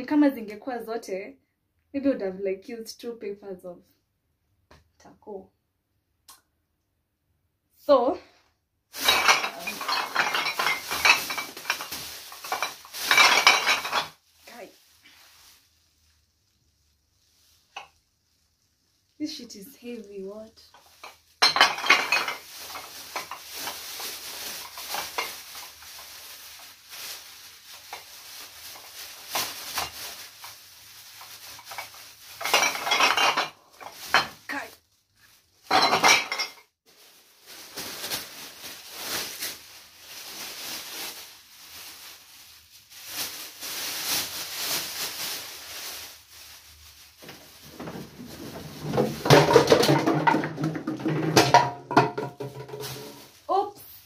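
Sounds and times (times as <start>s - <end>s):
glass bottles clinking: 9.0s - 14.2s, 20.8s - 23.5s, 31.6s - 34.4s, 35.7s - 36.7s, 47.7s - 53.2s.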